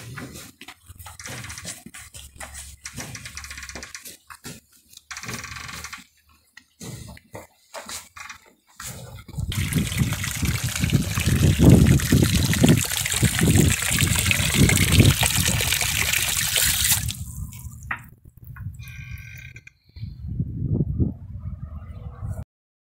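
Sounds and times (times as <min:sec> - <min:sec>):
water pouring into trough: 0:09.3 - 0:17.9.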